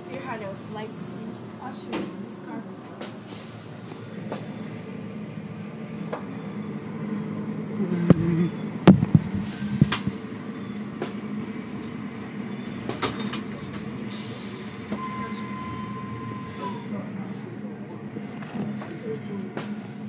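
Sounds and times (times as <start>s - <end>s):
car wash machinery humming: 0.0s - 20.0s
sharp knocks: 8.1s - 10.2s.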